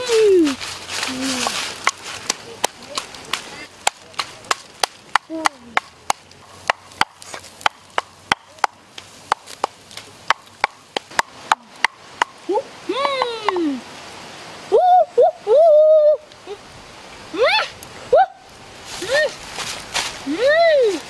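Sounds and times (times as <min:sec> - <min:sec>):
wooden pestle pounding in mortar: 0:01.8 - 0:12.3.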